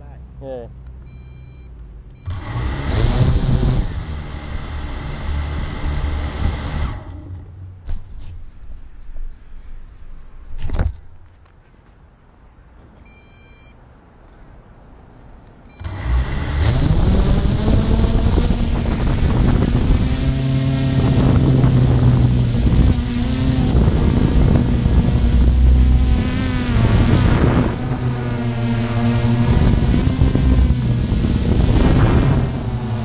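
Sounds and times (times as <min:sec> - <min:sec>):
vehicle engine running: 0:00.3 - 0:07.9, 0:15.8 - 0:33.0
electronic beep: 0:01.0 - 0:02.4, 0:13.0 - 0:13.8.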